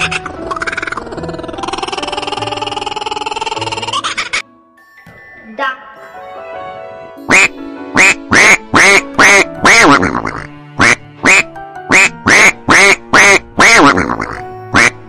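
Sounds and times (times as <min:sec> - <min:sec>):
duck quacking: 0:07.3 - 0:15.0.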